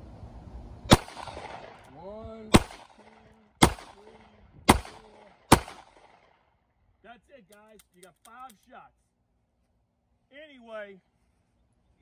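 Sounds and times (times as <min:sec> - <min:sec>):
revolver gunshots: 0:00.9 - 0:01.9, 0:02.5 - 0:06.4.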